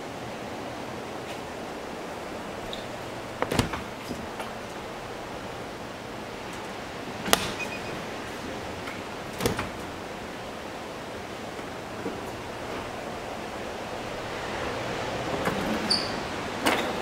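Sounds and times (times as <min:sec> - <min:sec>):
steady background hiss: 0:00.0 - 0:17.0
dishwasher door clicks: 0:03.3 - 0:04.3, 0:09.3 - 0:09.9.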